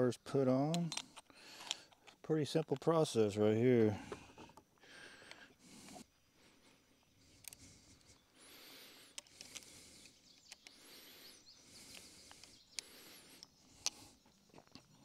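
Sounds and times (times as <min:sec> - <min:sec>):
faint high chirping: 0:09.8 - 0:15.0.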